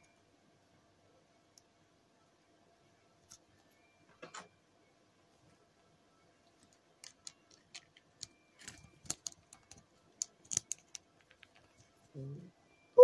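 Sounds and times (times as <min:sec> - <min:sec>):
small plastic clicks and taps: 0:06.6 - 0:11.7.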